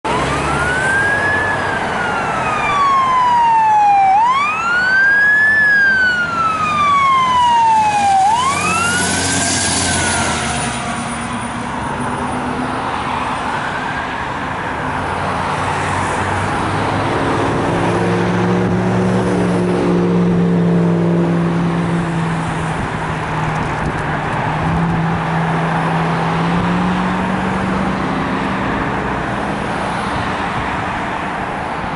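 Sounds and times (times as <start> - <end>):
road traffic noise: 0.0 - 31.9
fire engine siren wailing: 0.1 - 11.7.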